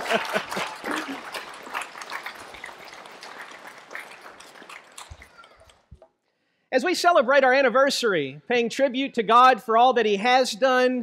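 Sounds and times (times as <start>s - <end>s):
congregation applauding: 0.0s - 6.0s.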